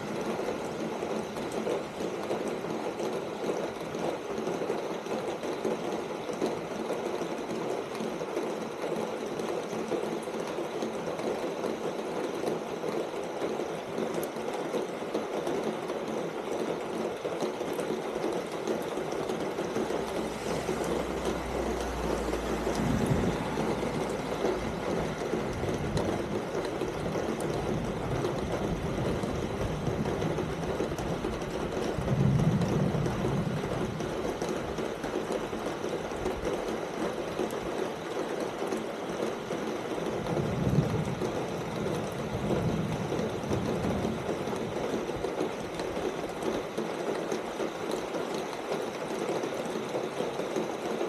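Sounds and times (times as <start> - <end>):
rain on a tin roof: 0.0 - 51.0
low rumble: 20.0 - 25.9.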